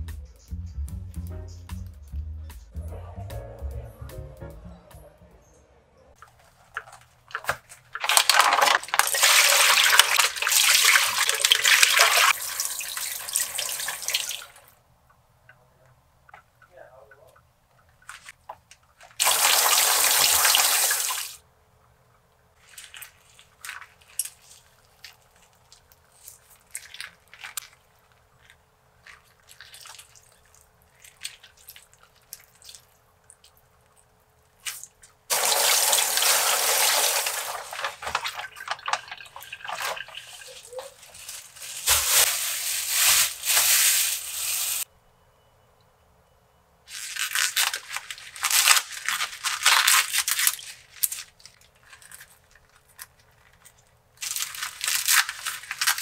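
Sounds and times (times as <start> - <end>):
plastic bag rustling: 6.2 - 14.6, 22.6 - 32.8, 35.3 - 44.9, 46.9 - 56.0
tap water running: 8.0 - 14.6, 19.2 - 21.4, 35.3 - 42.9
wet handling of raw chicken: 22.6 - 44.8.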